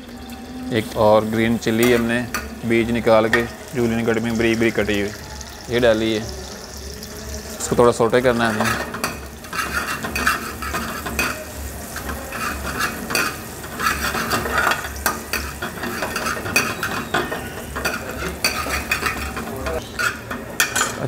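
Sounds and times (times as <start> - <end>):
chilli sizzling in oil: 0.0 - 21.0
spoon scraping pan: 6.5 - 21.0.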